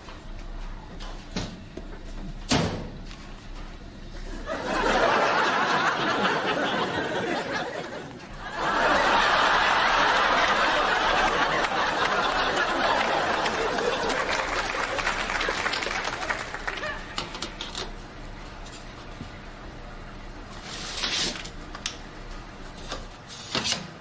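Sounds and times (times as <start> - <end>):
studio audience laughing: 4.2 - 17.2.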